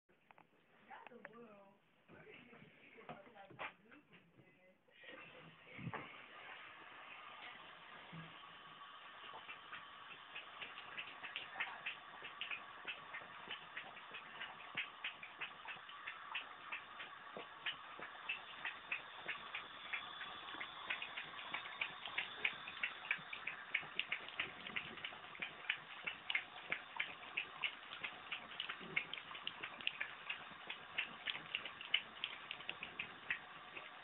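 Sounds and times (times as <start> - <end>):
running tap hiss: 6.0 - 34.0
dog lapping water: 8.7 - 34.0.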